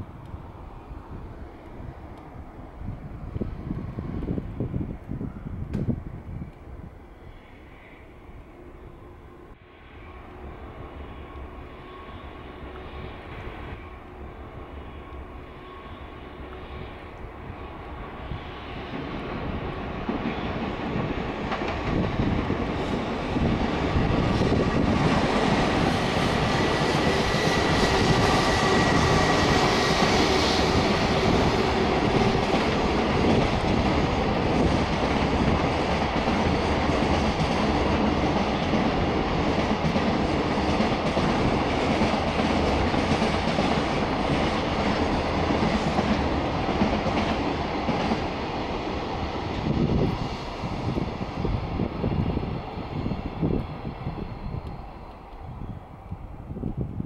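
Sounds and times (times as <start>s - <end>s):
train wheels rumbling and clattering: 16.6s - 57.0s.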